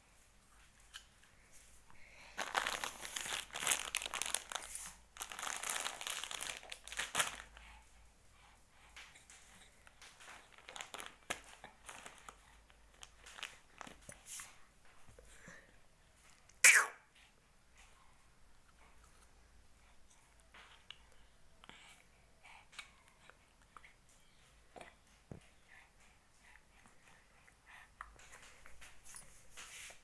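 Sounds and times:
crinkling crackly rustle: 0.5s - 7.8s, 9.0s - 15.1s.

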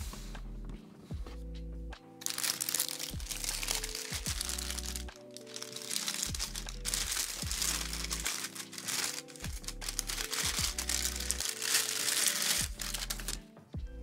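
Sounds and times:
background music with deep bass: 0.0s - 14.0s
plastic bag crinkling: 2.2s - 13.4s.

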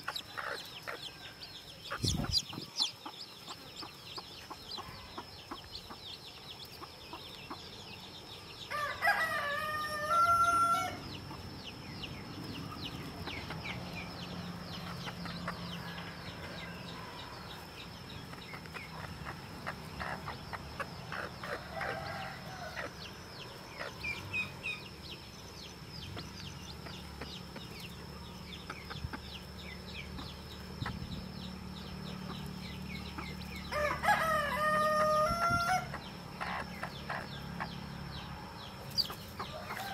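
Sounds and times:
chicks peeping: 0.0s - 39.9s
rooster crowing: 8.7s - 11.0s, 21.6s - 23.0s, 33.7s - 35.9s.

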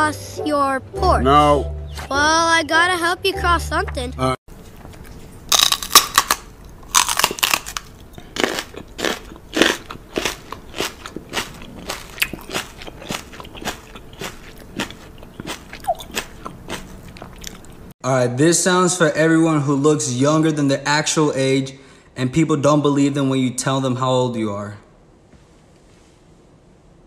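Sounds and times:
person chewing crunchy food: 4.5s - 17.9s.

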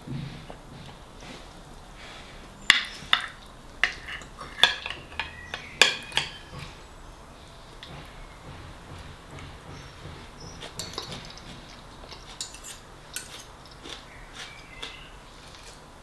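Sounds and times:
cutlery clinking on plate: 2.7s - 6.7s, 10.6s - 14.0s.

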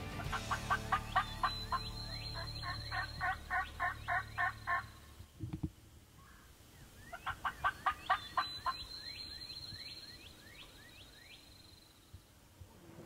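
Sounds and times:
turkey gobbling: 0.1s - 5.1s, 7.1s - 9.0s
faint falling whistled notes: 1.4s - 3.4s.

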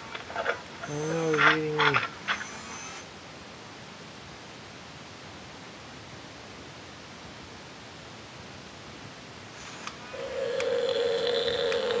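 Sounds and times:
toy dinosaur call from speaker: 10.1s - 12.0s.

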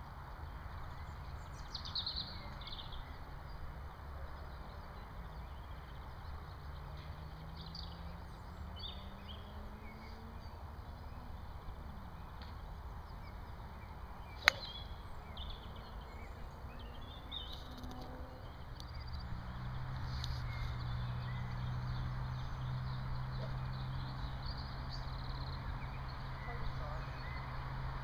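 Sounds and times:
small birds chirping: 0.4s - 28.0s
golf club striking ball: 14.3s - 14.9s.

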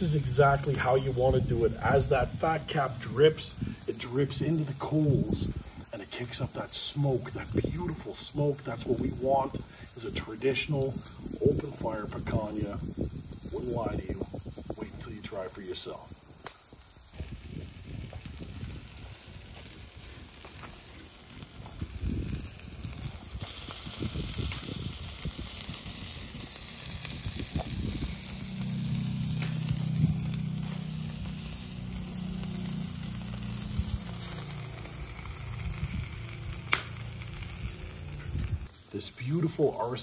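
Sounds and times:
fat sizzling on embers: 0.0s - 40.0s
low rumble: 17.1s - 38.7s.

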